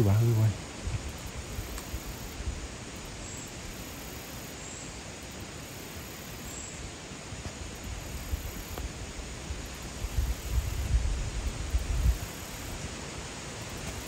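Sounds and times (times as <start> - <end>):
wind rumbling on microphone: 0.0 - 3.6, 7.5 - 14.0
steady outdoor hiss: 0.0 - 14.0.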